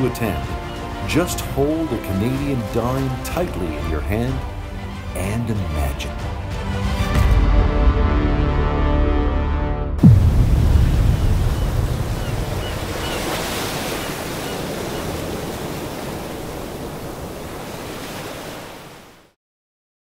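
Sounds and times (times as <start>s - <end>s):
ocean waves washing: 0.0s - 7.2s, 10.0s - 19.4s
low rumble: 9.9s - 13.0s.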